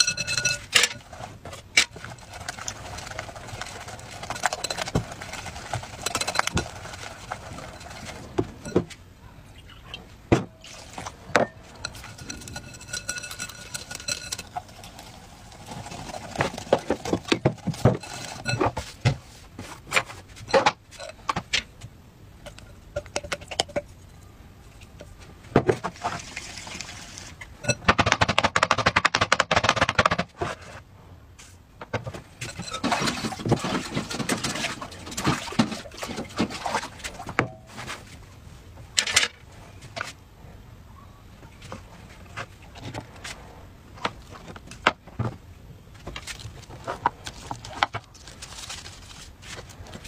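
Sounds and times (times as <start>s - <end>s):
whisk beating batter in glass bowl: 0.0s - 8.8s, 11.7s - 18.7s.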